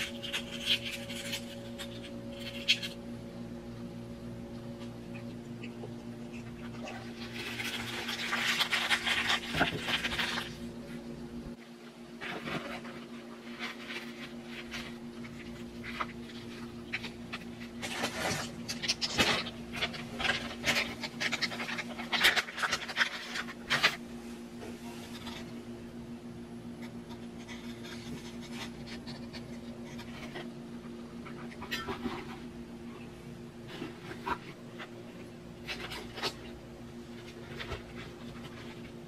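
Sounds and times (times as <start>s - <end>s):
steady low hum: 0.0s - 39.0s
face masks rustling and crinkling: 6.8s - 10.7s, 12.2s - 24.0s.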